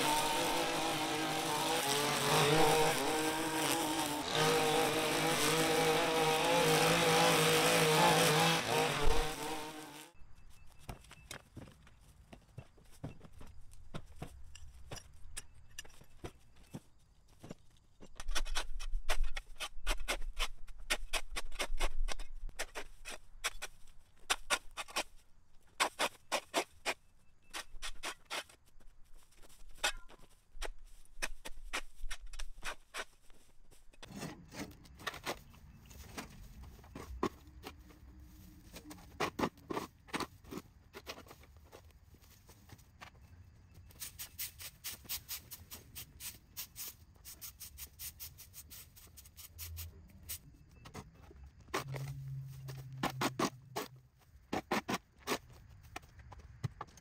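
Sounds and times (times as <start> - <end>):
scraping and rustling strokes: 27.6 - 43.1, 43.8 - 55.7.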